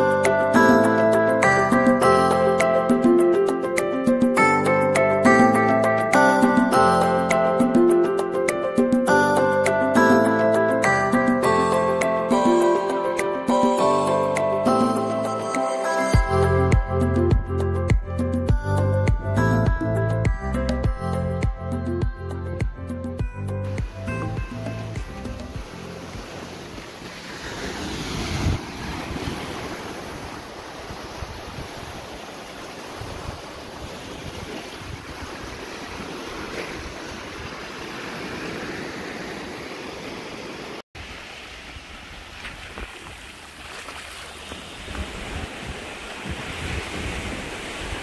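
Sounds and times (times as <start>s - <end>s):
surf breaking over rocks: 23.6s - 48.0s
wind on microphone: 23.8s - 38.9s, 44.2s - 48.0s.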